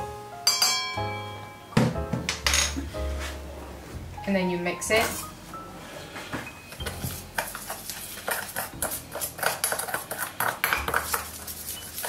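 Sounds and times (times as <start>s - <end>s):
fork clinking in metal bowl: 6.8s - 12.0s.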